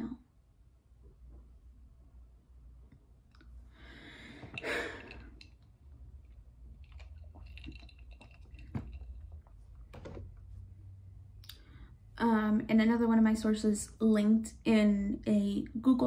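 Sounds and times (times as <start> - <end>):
breath: 3.7 - 5.3.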